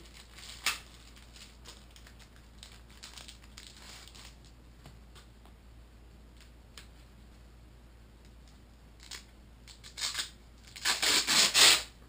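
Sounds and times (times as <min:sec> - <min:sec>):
packaging crinkling: 0:00.0 - 0:04.5.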